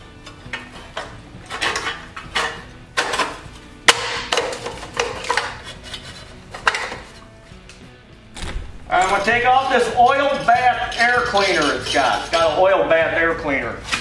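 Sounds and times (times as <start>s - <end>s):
sharp knock: 8.3s - 9.5s
sheet metal clanks and rattles: 8.3s - 12.2s.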